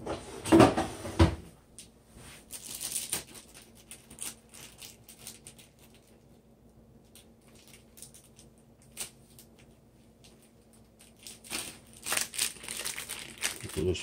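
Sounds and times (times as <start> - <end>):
plastic bag crinkling: 2.4 - 6.4, 7.0 - 14.0.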